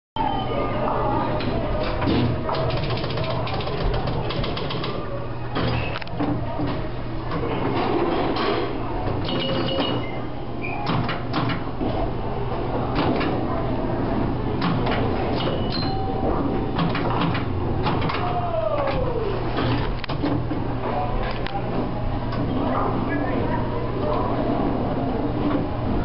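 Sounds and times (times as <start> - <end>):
pinball machine relays clicking: 2.5 - 5.0.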